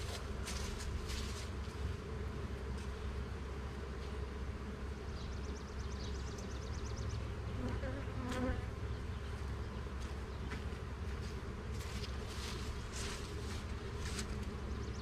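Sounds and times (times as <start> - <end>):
honey bees buzzing: 0.0 - 15.0.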